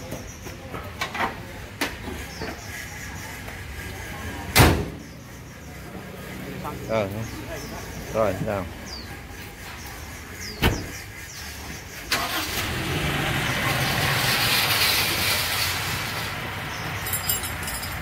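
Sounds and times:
car engine starting and running: 0:12.1 - 0:18.0.

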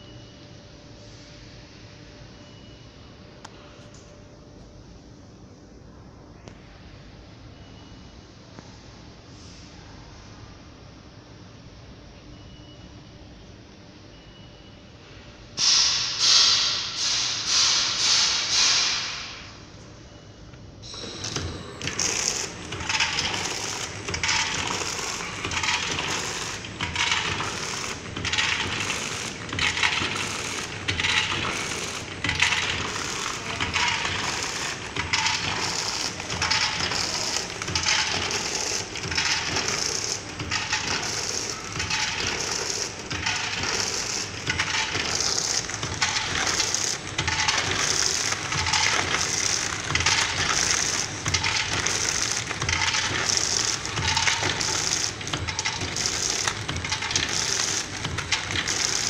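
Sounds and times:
packaging machine running: 0:20.8 - 0:59.0
nuts rattling and clattering: 0:21.3 - 0:59.0.

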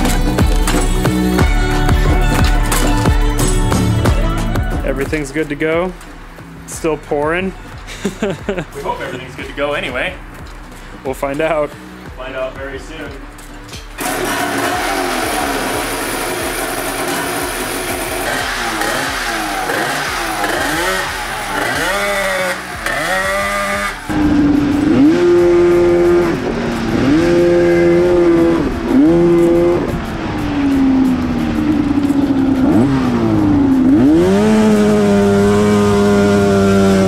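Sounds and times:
two-stroke engine revving: 0:14.0 - 0:37.0.

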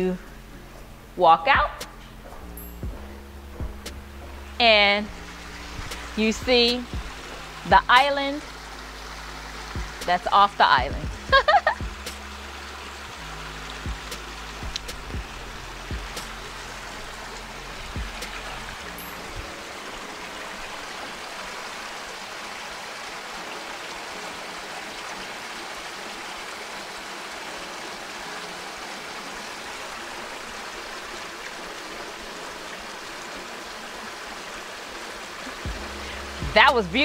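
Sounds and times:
low steady hum: 0:00.0 - 0:20.0, 0:35.5 - 0:37.0
waterfall splashing into pool: 0:06.8 - 0:36.9.

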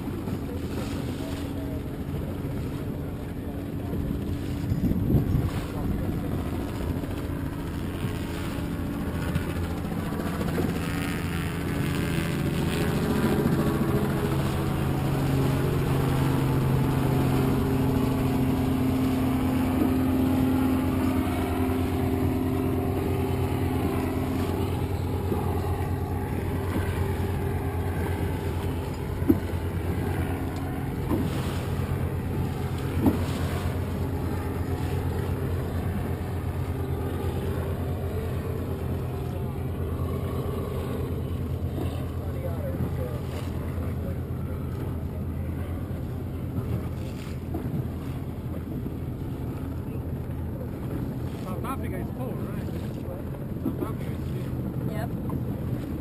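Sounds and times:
motorboat engine running: 0:00.0 - 0:56.0.

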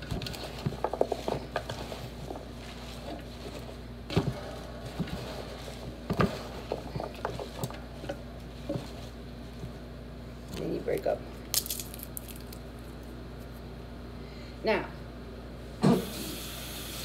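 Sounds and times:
hands rustling vegetables: 0:00.0 - 0:13.7.

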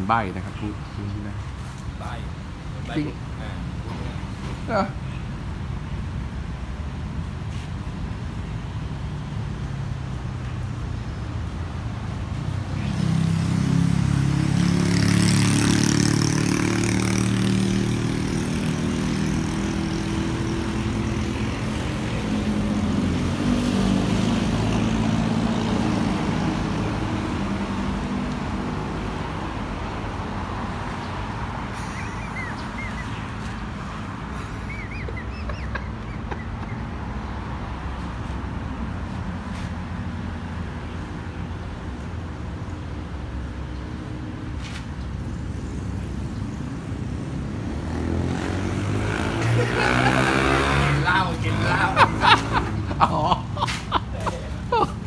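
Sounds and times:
steady traffic rumble: 0:00.0 - 0:55.0
vehicle engine passing by: 0:12.4 - 0:41.1, 0:45.5 - 0:54.6.

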